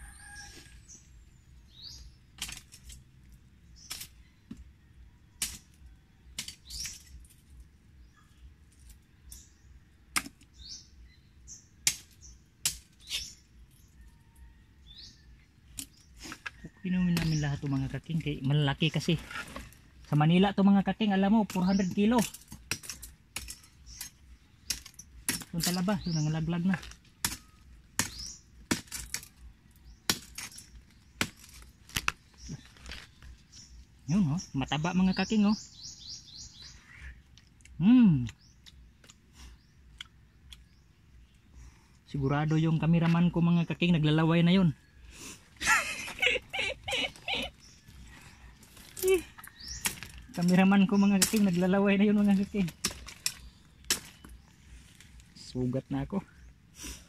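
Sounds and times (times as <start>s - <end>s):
small birds chirping: 0.0s - 57.0s
shellfish shells knocking: 11.8s - 13.2s, 21.4s - 26.1s, 26.8s - 33.2s, 46.0s - 55.3s.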